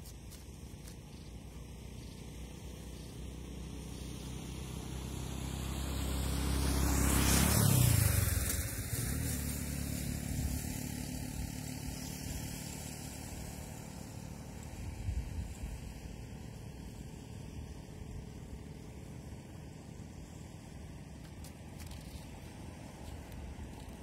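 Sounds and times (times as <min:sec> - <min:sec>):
vehicle engine driving past: 0:02.4 - 0:21.2.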